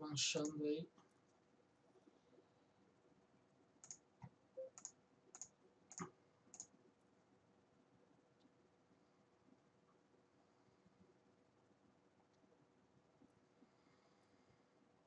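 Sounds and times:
computer mouse clicks: 0:03.8 - 0:06.8.

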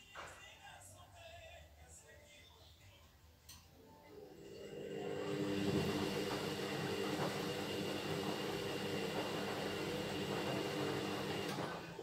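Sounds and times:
washing machine motor whirring: 0:04.1 - 0:12.0.

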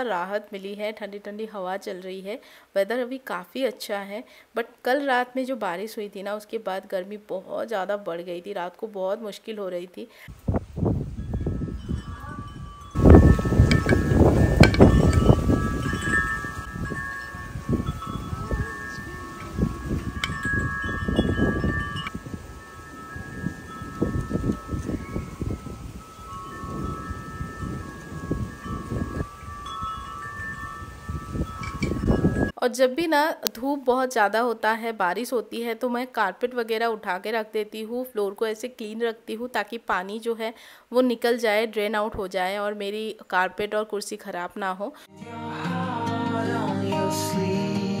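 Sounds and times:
wind rumbling on microphone: 0:10.3 - 0:32.6
wind chimes ringing: 0:11.1 - 0:32.6.

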